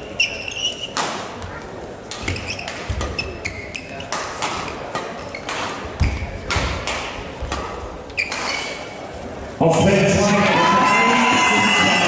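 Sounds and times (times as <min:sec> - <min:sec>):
shoes squeaking on court floor: 0:00.0 - 0:06.6, 0:07.4 - 0:09.4
racket hitting shuttlecock: 0:00.8 - 0:08.7.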